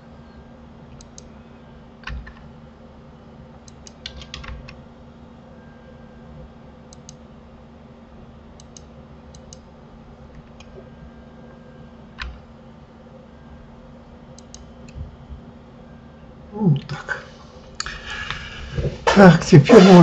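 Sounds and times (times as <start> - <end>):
steady low hum: 0.0 - 20.0
computer mouse clicking: 1.0 - 1.3, 3.6 - 4.8, 6.9 - 7.2, 8.6 - 9.7, 14.4 - 15.0.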